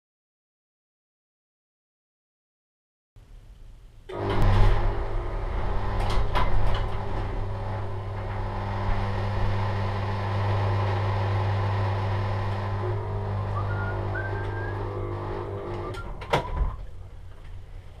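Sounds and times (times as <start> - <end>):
garage door opener clicks: 4.1 - 16.8
garage door motor hum: 4.1 - 18.0
short rising squeak: 13.5 - 15.0.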